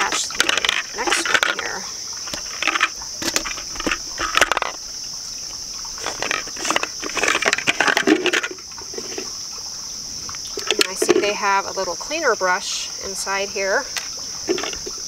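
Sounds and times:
crickets chirring: 0.0s - 15.0s
plastic parts knocking and clicking: 2.3s - 4.8s, 14.5s - 15.0s.

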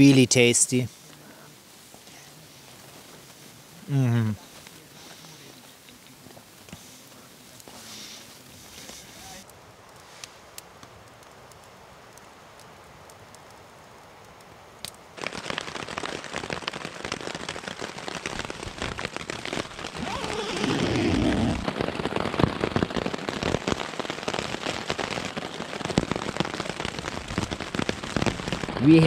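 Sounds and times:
low rustle: 0.0s - 14.6s
heavy rain on tent fabric: 0.0s - 29.0s.

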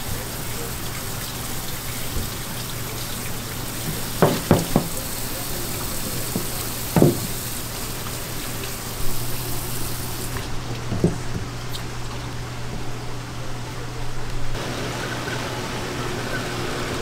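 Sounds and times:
steady hiss: 0.0s - 11.9s
knife knocking on cutting board: 3.9s - 5.0s, 6.3s - 7.4s.

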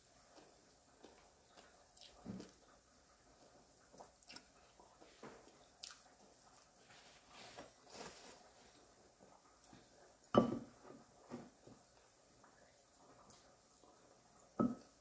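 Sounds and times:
paper napkin rustling: 6.9s - 8.7s.

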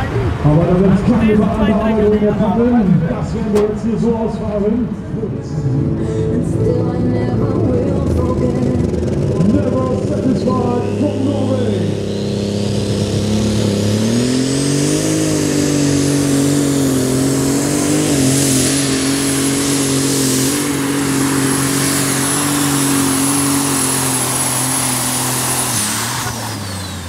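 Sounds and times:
diesel engine under full load: 0.0s - 27.0s.

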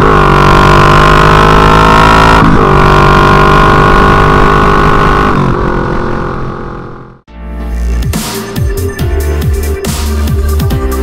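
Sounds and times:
loud open-pipe motorcycle engine drone: 0.0s - 7.3s.

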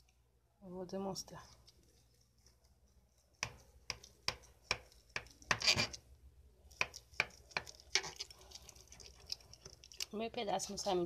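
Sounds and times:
knife scraping glass dish: 5.5s - 6.0s.

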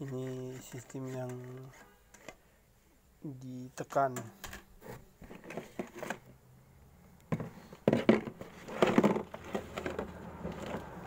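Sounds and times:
rustling of parts: 0.0s - 2.5s, 4.0s - 6.4s, 7.2s - 11.0s.

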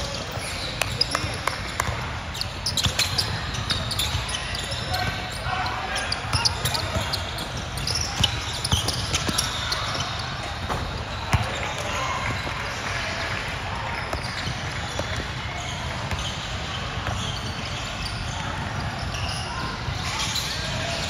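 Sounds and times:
basketball bouncing on court: 6.2s - 12.8s, 14.0s - 20.4s.

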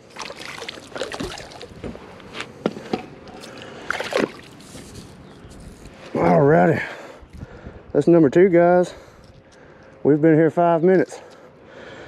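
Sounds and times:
water splashing and sloshing: 0.0s - 5.3s.

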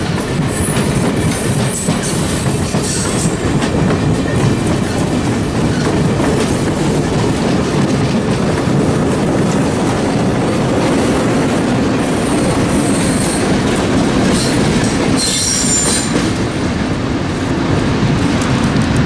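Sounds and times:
train wheels rumbling on rail: 0.0s - 19.0s
high-pitched wheel squeal: 15.2s - 16.2s.

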